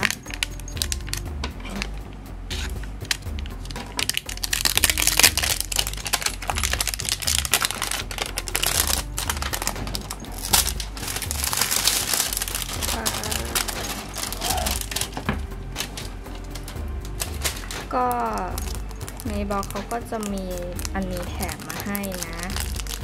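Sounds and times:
plastic shrink-wrap crinkling: 0.0 - 1.9, 3.0 - 23.0
background music with low beat: 0.0 - 23.0.

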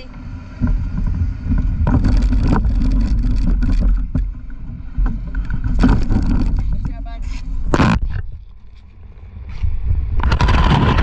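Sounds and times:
wind buffeting microphone: 0.0 - 8.7, 9.3 - 11.0
camera handling knocks and scrapes: 7.6 - 8.8.

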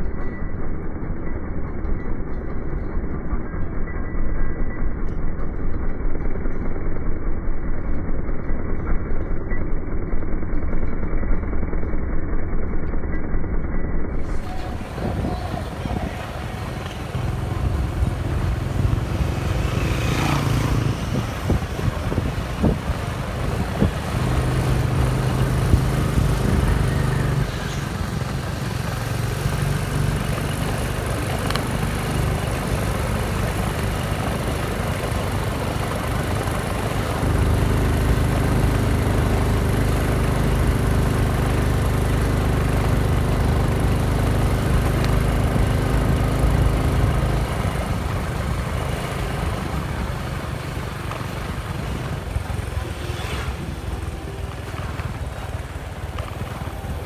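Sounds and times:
small motorcycle engine running: 0.0 - 57.0
wind and road noise: 0.0 - 57.0.

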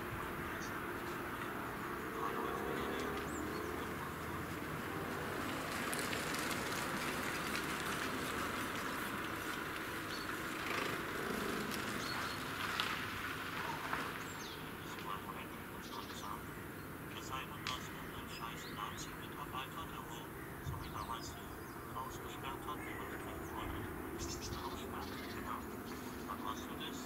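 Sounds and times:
outdoor background noise: 0.0 - 27.0
bird chirps: 10.0 - 12.6, 13.6 - 27.0.

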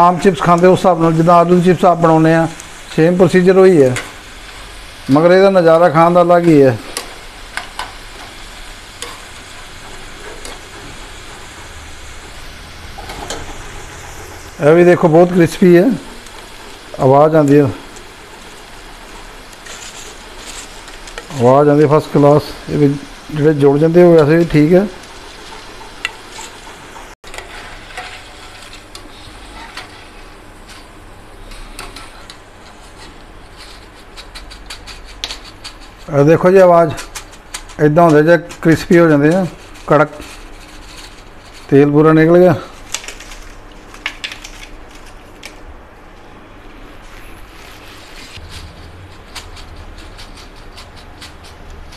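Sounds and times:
deep-frying sizzle: 0.0 - 51.9
skimmer scraping metal pan: 5.2 - 44.6, 47.2 - 51.9.

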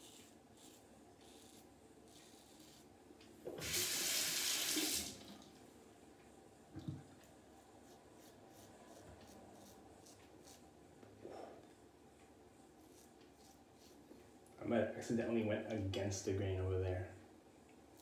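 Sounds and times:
razor scraping stubble: 0.0 - 2.9, 7.8 - 10.7, 12.8 - 14.0.

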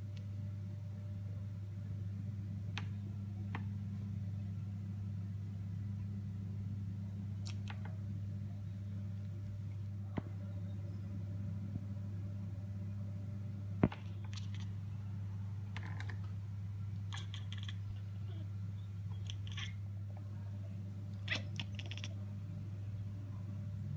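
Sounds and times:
steady low hum: 0.0 - 23.9
kittens chattering: 13.9 - 15.0, 17.0 - 19.9, 21.1 - 22.3.

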